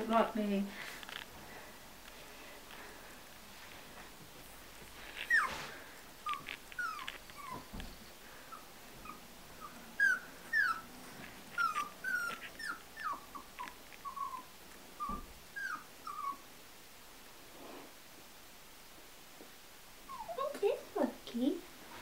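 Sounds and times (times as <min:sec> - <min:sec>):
puppies whimpering: 0:05.0 - 0:16.4.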